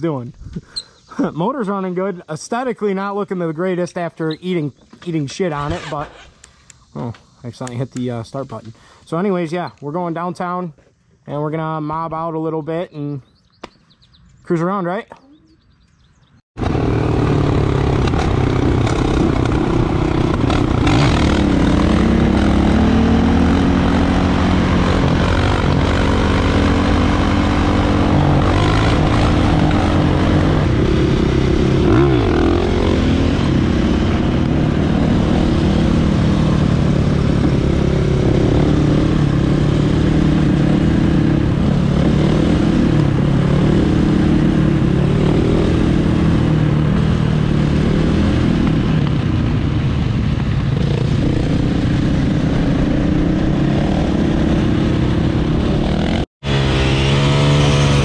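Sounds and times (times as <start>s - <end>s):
dirt bike engines revving: 0.0s - 10.3s, 16.6s - 58.0s.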